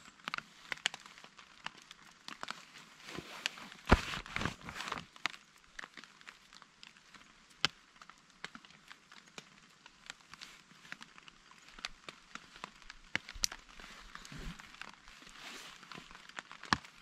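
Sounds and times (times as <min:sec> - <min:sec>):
raindrops ticking on tarp: 0:00.0 - 0:17.0
paper sachet ripping and crinkling: 0:02.6 - 0:05.1.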